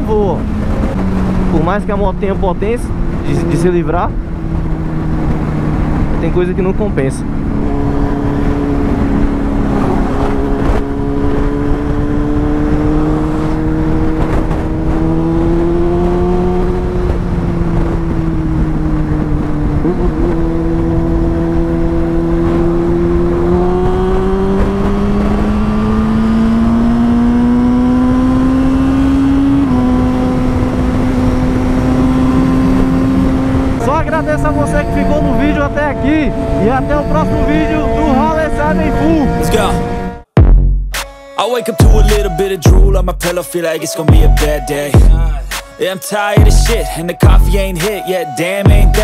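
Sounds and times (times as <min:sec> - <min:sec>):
wind rumble: 0:00.0 - 0:26.2, 0:29.3 - 0:40.3.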